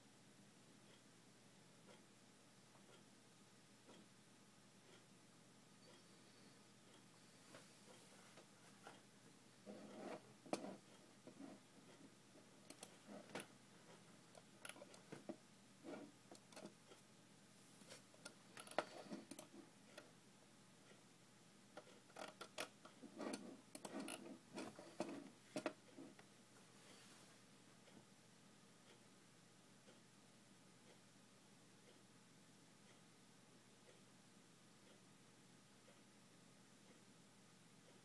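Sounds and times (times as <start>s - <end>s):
soft rustles: 7.4s - 9.0s, 23.2s - 27.4s.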